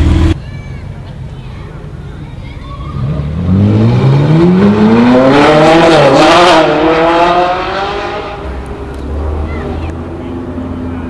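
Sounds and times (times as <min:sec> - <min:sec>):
sports car engine accelerating hard: 0:03.0 - 0:11.0.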